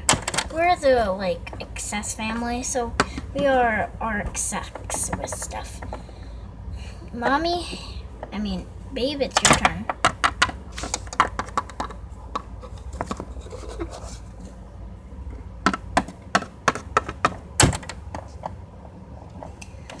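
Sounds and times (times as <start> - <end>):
plastic toys clicking and tapping: 4.7 - 6.0, 9.3 - 13.2, 15.6 - 18.6.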